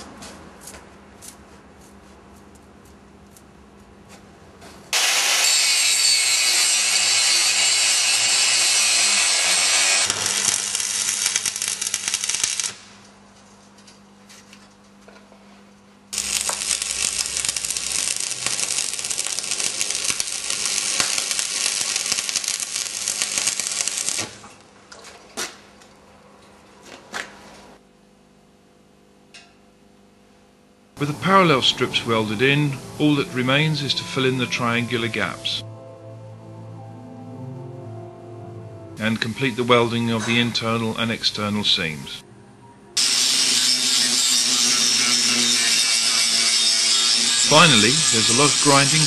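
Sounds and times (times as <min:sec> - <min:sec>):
arc welding crackling hiss: 0:04.9 - 0:13.1, 0:16.1 - 0:24.6, 0:39.0 - 0:40.8, 0:43.0 - 0:49.0.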